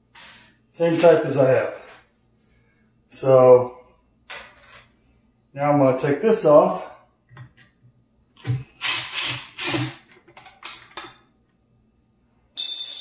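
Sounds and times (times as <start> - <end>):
cordless driver whirring: 8.4 - 10.0.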